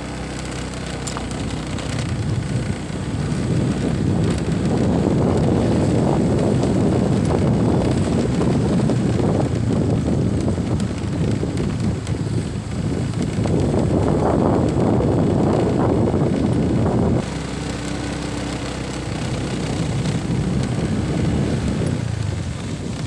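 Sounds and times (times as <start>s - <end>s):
motorcycle engine running: 0.0s - 23.0s
wind buffeting microphone: 0.0s - 23.0s.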